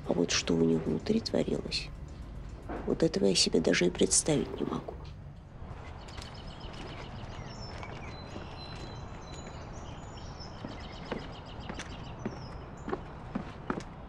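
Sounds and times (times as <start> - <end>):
steady low rumble: 0.0 - 13.4
small birds chirping: 5.6 - 14.0.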